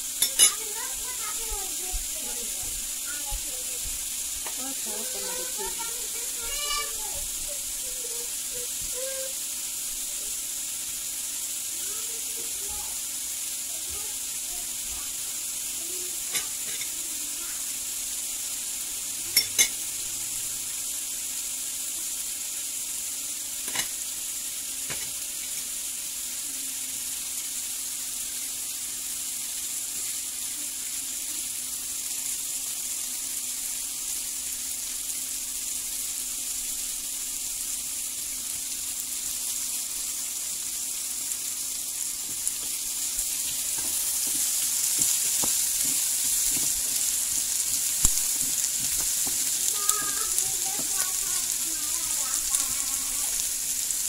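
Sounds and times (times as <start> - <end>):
food sizzling in a pan: 0.0 - 54.0
knife clicking against pan: 0.2 - 0.6.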